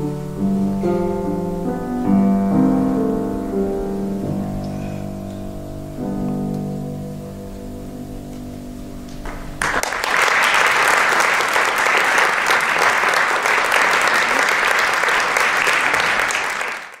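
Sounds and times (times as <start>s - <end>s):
piano chord: 0.0s - 10.2s
audience applause: 9.2s - 17.0s.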